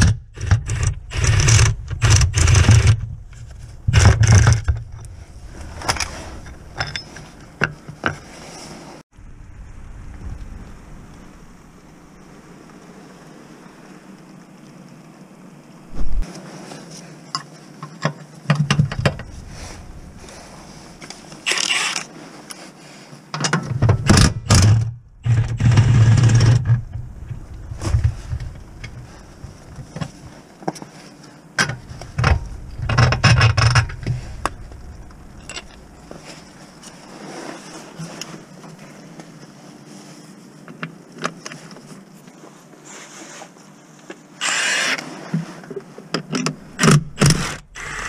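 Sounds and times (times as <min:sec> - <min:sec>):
metal and rubber parts knocking: 0:00.0 - 0:05.1.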